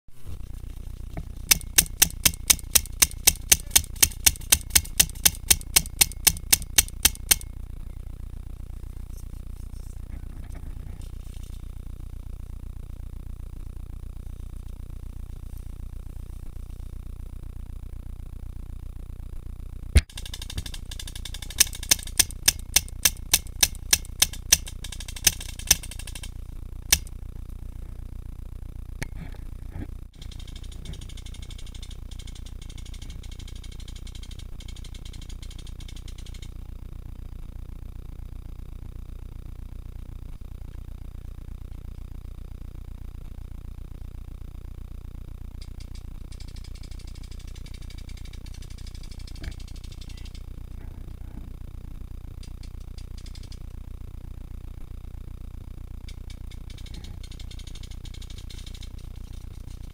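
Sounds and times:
steady high whir: 0.2 - 59.9
paintball marker firing shots: 1.5 - 7.5, 20.0 - 26.1
paintball marker shots: 1.5 - 7.5.

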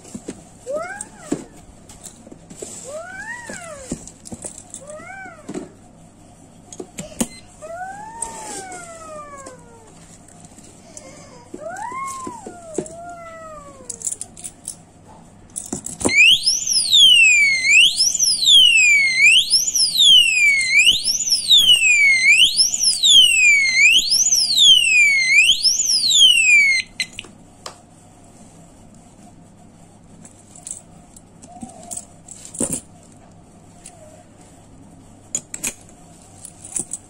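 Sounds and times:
electronic siren wailing: 16.1 - 27.1.

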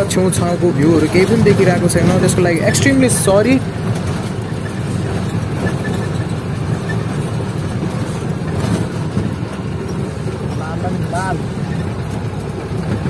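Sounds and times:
road noise: 0.0 - 13.0
truck engine running: 0.0 - 13.0.

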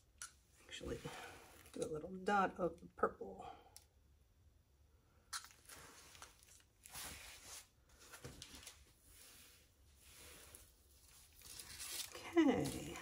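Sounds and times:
faint soft rustles: 5.6 - 13.0.

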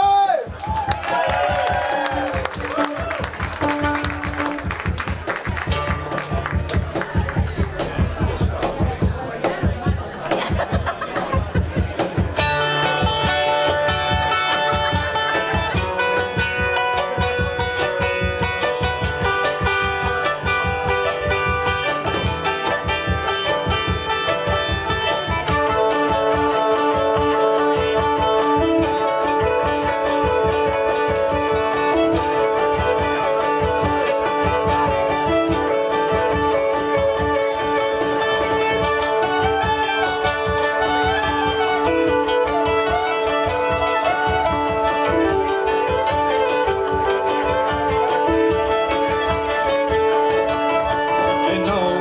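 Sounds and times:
cajon beat: 0.0 - 52.0
fiddle: 0.0 - 52.0
plucked string instrument: 0.0 - 52.0
hurdy-gurdy drone: 11.4 - 52.0.

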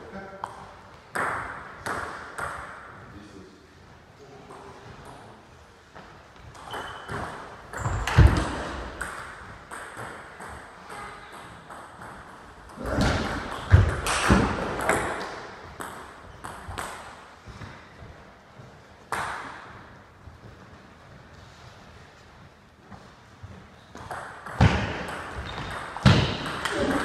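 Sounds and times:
table tennis balls clicking: 6.5 - 17.2, 24.0 - 27.0.

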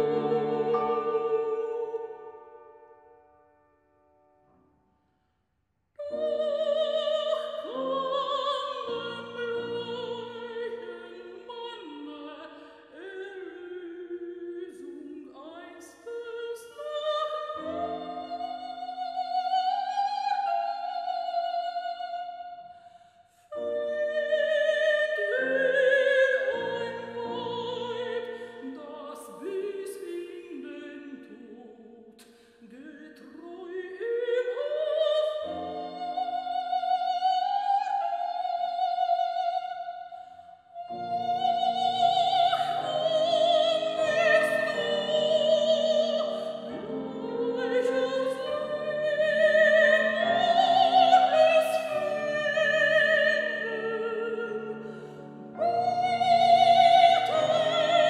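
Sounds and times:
operatic soprano singing: 0.0 - 2.7, 6.0 - 22.8, 23.4 - 58.0
piano accompaniment: 0.0 - 4.5.

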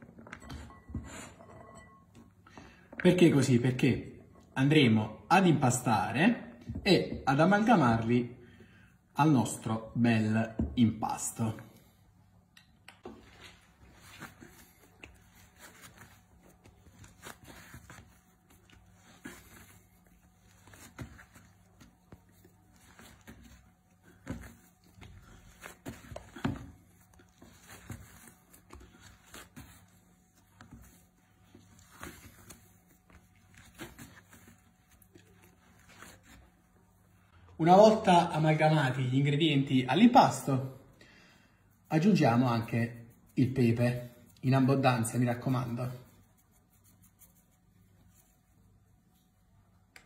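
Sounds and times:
low steady hum: 0.0 - 38.3
hands kneading bread dough: 13.0 - 39.0, 41.6 - 50.0.

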